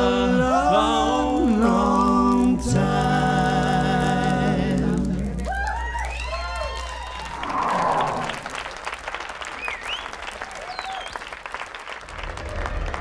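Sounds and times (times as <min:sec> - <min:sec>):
voices singing in harmony: 0:00.0 - 0:05.5.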